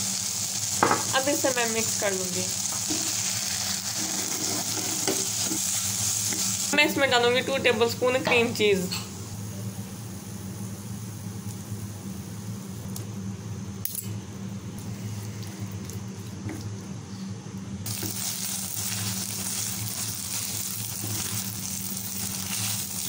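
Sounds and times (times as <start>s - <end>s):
chicken sizzling in frying pan: 0.0s - 8.0s, 17.8s - 23.0s
steady low hum: 0.0s - 23.0s.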